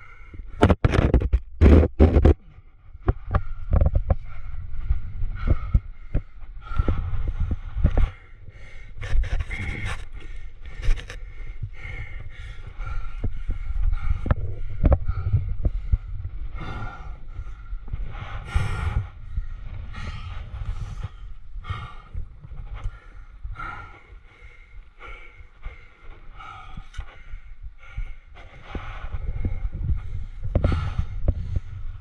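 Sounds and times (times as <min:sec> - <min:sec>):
low rumble of microphone rubbing: 0:00.0 - 0:32.0
scraping and knocking against rock: 0:00.6 - 0:02.4, 0:09.0 - 0:11.2
person breathing hard: 0:03.2 - 0:32.0.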